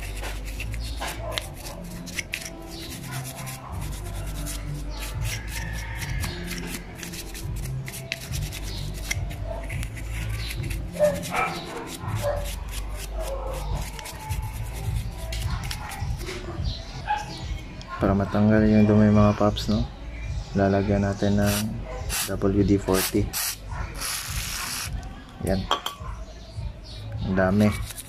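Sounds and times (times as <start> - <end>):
toothbrush scrubbing metal: 0.0 - 16.4, 27.6 - 28.0.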